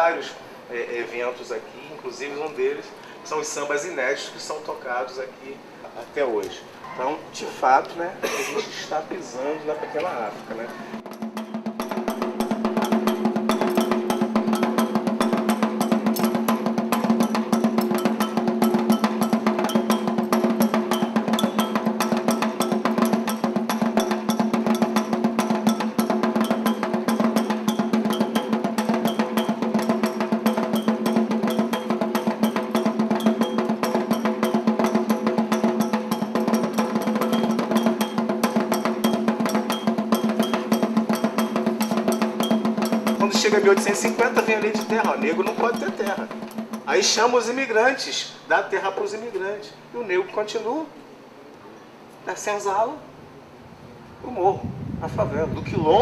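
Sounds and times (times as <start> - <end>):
fast drum strokes: 10.9 - 47.8.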